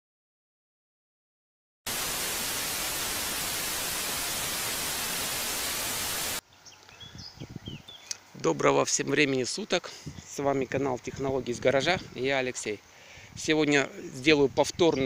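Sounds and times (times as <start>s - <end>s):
loud static hiss: 1.9s - 6.4s.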